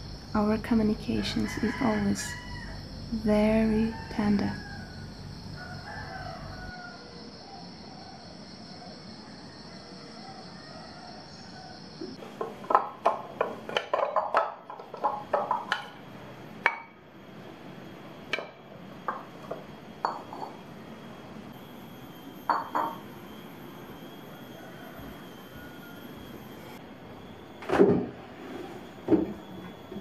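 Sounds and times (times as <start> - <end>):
ceramic dishes clinking: 12.7 - 16.0, 20.0 - 20.6, 22.5 - 23.0.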